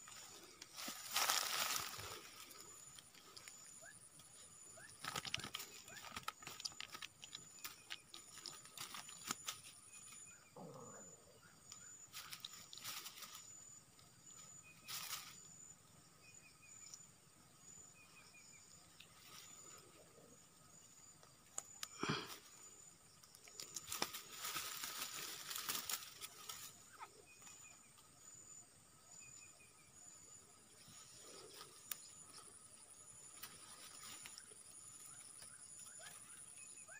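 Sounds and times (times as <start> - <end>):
dry grass crackling: 0.0 - 10.3, 11.7 - 15.5, 21.5 - 27.7, 30.8 - 36.9.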